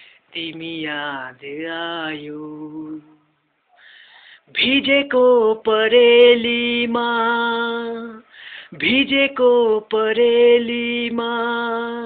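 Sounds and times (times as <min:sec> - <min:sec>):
man singing unaccompanied: 0:00.3 - 0:03.5, 0:04.5 - 0:12.0
man taking a breath: 0:03.7 - 0:04.5, 0:08.3 - 0:08.8.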